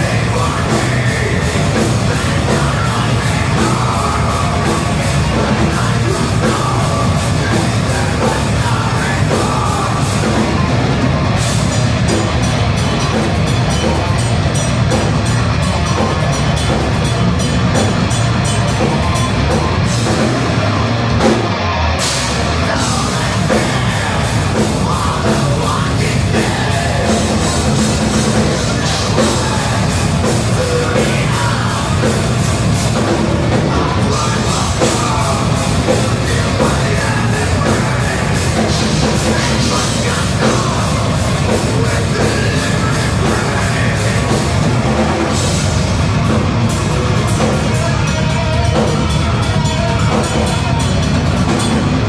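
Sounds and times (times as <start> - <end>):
bass guitar: 0.0 - 52.0
electric guitars: 0.0 - 52.0
fast drumming: 0.0 - 52.0.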